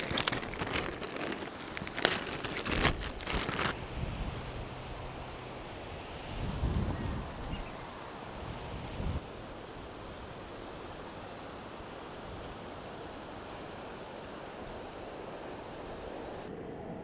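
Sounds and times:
light breeze: 0.0s - 17.0s
distant surf hiss: 3.7s - 17.0s.

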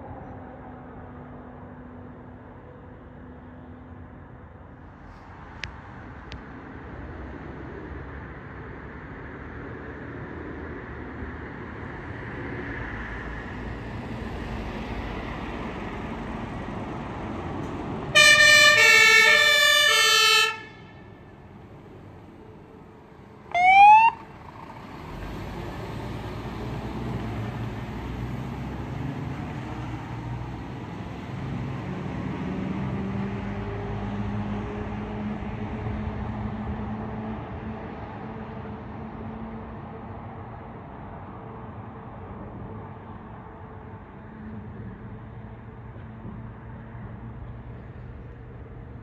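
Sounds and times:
truck engine rumble: 0.0s - 49.0s
two-tone siren: 18.1s - 21.1s, 23.5s - 24.3s
rising siren whoop: 18.2s - 20.7s, 23.5s - 24.3s.

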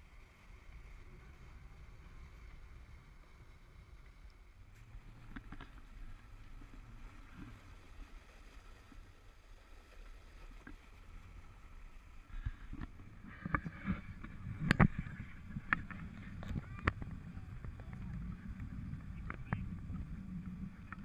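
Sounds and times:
low steady hum: 0.0s - 21.0s
water washing along hull: 0.0s - 21.0s.

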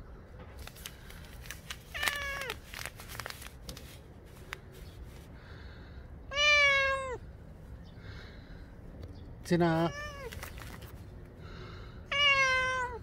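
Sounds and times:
cat meowing: 1.9s - 2.6s, 6.3s - 7.2s, 9.9s - 10.4s, 12.1s - 13.0s.

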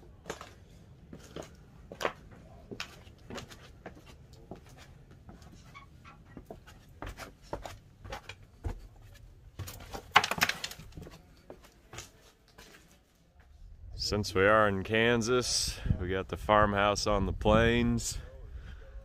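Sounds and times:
crunching and scraping: 4.6s - 13.2s
footsteps crunching over debris: 6.4s - 13.0s.

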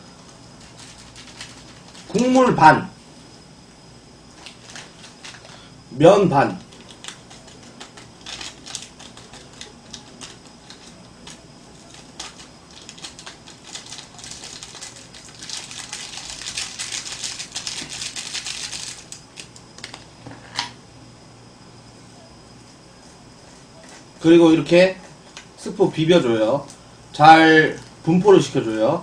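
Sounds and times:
foil packet crinkling: 0.2s - 2.4s, 4.4s - 5.7s, 6.4s - 20.1s
powder falling on noodles: 6.6s - 20.1s.

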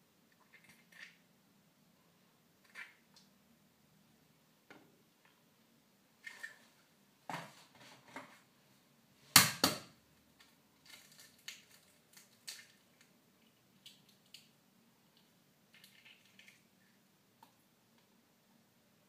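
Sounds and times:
eggshell cracking apart: 10.8s - 13.1s.

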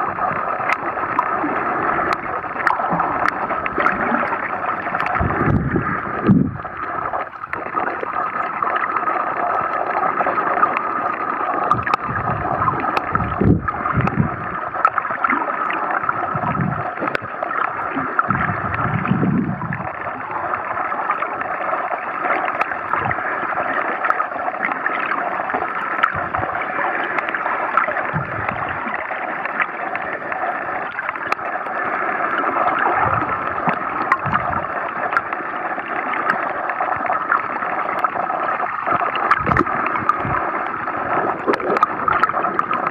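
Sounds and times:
muffled underwater hiss: 0.0s - 42.9s
whooshes of moving water: 2.1s - 6.7s.

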